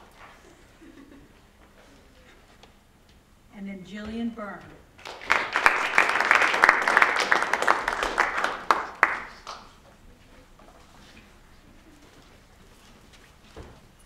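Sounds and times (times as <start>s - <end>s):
audience applauding: 5.0s - 9.8s.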